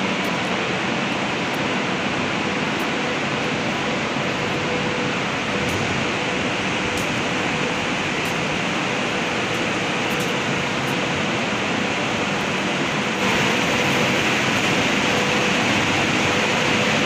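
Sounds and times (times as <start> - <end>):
cooling blowers whirring: 0.0 - 17.0
faint hum: 0.0 - 17.0.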